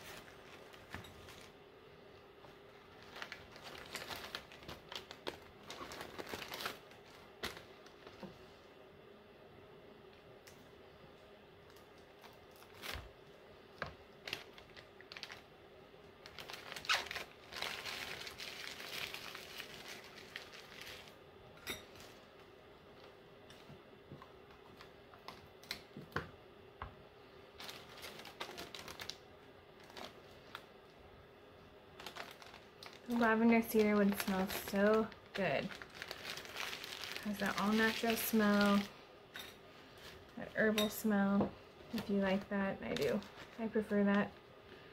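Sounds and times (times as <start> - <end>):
paper crinkling and rustling: 0.0 - 1.6, 2.4 - 8.4, 11.7 - 13.1, 13.8 - 15.5, 16.2 - 21.2, 27.6 - 29.2, 29.8 - 30.7, 32.0 - 38.9, 41.9 - 44.2.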